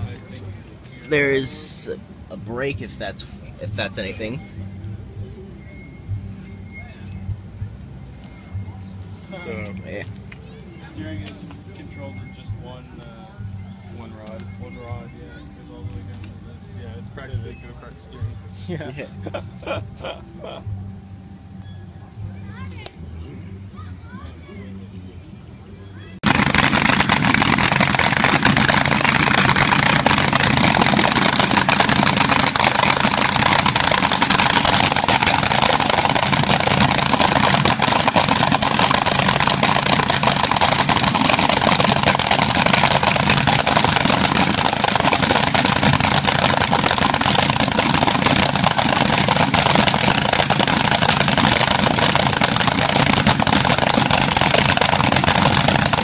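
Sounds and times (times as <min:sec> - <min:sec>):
dragster engine roaring: 0:26.2 - 0:56.0.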